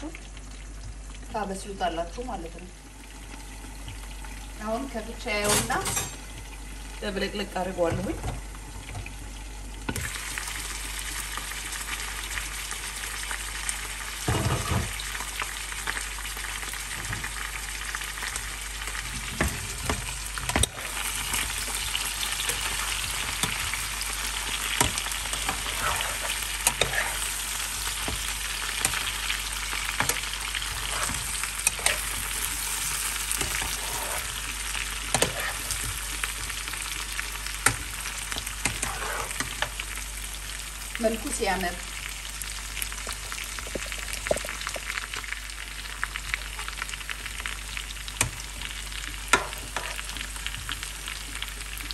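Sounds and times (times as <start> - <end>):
food sizzling in oil: 0.0 - 51.9
spatula scraping pan: 20.6 - 34.5, 35.1 - 36.1, 38.6 - 39.6, 49.4 - 50.1.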